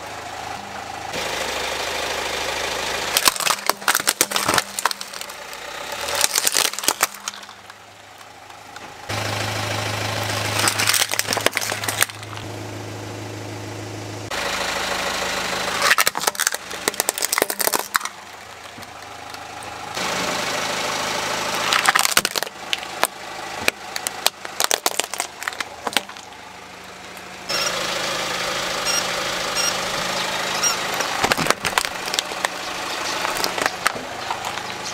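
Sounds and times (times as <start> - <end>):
car engine idling: 0.0 - 34.9
plastic toys cracking and snapping: 3.1 - 8.8, 10.6 - 12.4, 15.8 - 19.4, 21.7 - 26.3, 31.2 - 32.6, 33.2 - 34.7.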